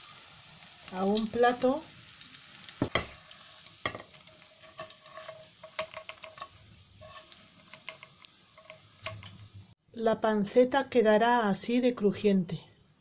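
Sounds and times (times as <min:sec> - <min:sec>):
meat sizzling in a frying pan: 0:00.0 - 0:09.8.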